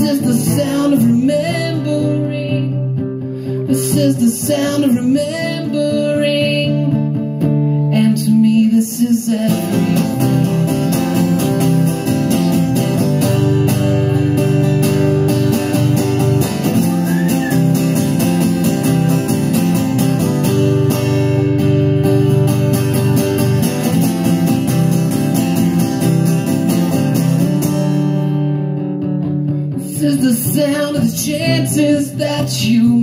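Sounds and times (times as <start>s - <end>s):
acoustic guitar strumming: 0.0s - 33.0s.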